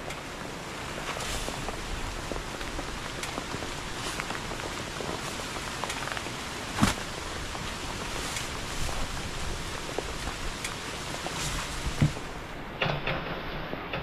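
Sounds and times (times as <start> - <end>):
steady rain falling: 0.0 - 14.0
dull thump: 6.8 - 7.1, 12.0 - 12.2.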